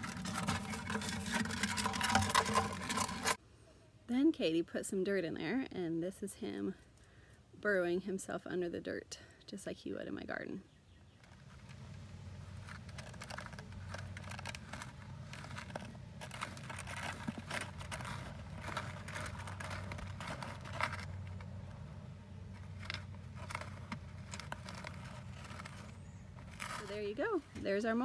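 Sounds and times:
scratching of dirt and grit: 0.0s - 3.4s, 11.2s - 28.0s
low steady hum: 0.0s - 28.0s.

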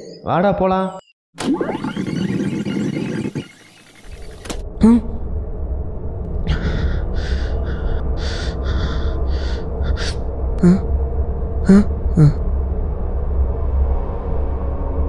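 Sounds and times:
low rumble: 4.6s - 15.0s
man panting: 6.4s - 10.9s, 11.7s - 12.4s.

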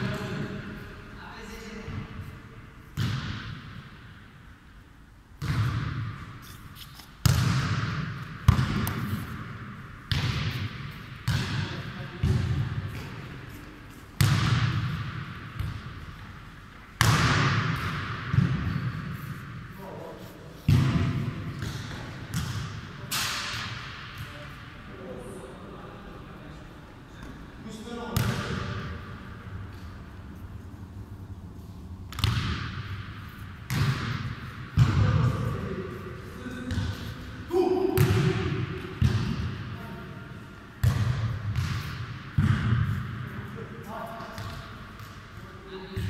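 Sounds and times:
football thudding with echo: 2.9s - 4.0s, 5.4s - 6.3s, 7.2s - 13.5s, 14.2s - 19.8s, 20.6s - 24.5s, 27.1s - 30.1s, 32.1s - 39.9s, 40.7s - 43.5s, 44.2s - 45.2s.

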